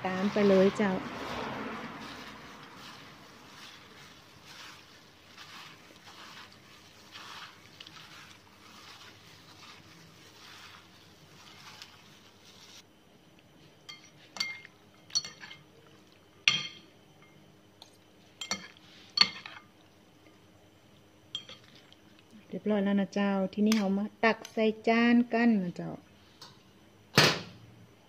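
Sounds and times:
salad swishing in a bowl: 0.1s - 12.9s
utensils clinking against bowl: 13.9s - 15.7s, 16.5s - 17.4s, 18.4s - 19.7s, 21.3s - 21.9s.

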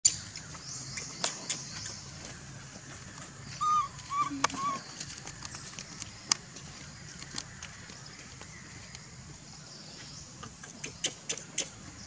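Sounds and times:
baby monkey high calls: 3.6s - 4.9s.

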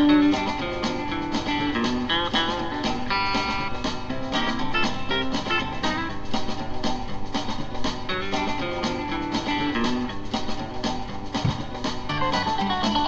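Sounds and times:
acoustic guitar strumming and picking: 0.0s - 6.3s.

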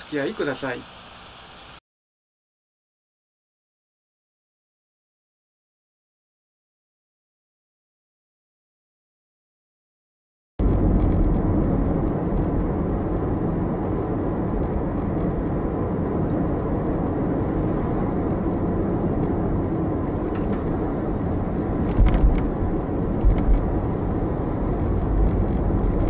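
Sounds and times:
tyres rumbling on road: 10.6s - 26.0s.

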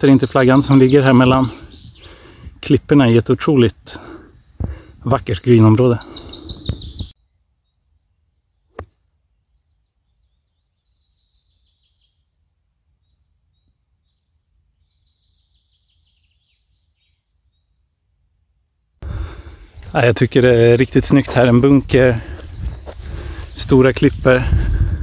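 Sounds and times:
golf club striking ball: 8.7s - 9.0s.

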